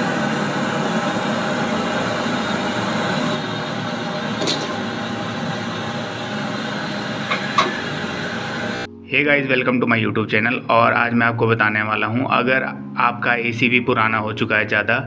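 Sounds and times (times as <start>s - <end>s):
gas torch hissing: 0.0s - 8.9s.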